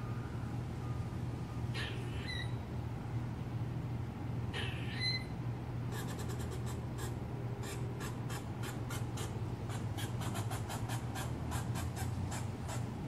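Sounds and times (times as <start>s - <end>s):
steady low hum: 0.0s - 13.0s
squirrel clicking alarm call: 1.8s - 2.6s, 4.6s - 5.3s, 5.9s - 13.0s.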